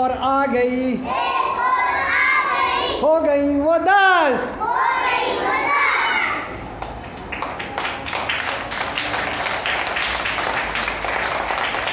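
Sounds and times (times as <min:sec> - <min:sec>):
children's voices: 0:01.0 - 0:03.1, 0:04.5 - 0:06.7
children clapping: 0:06.7 - 0:11.9.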